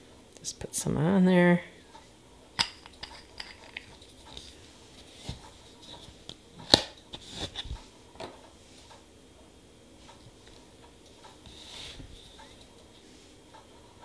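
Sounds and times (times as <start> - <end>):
tools tapping and scraping metal plate: 2.6 - 4.0.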